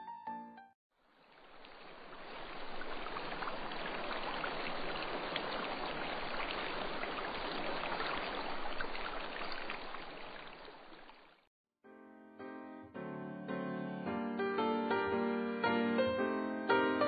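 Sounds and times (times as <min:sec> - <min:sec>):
rushing water of a stream: 0:01.0 - 0:11.5.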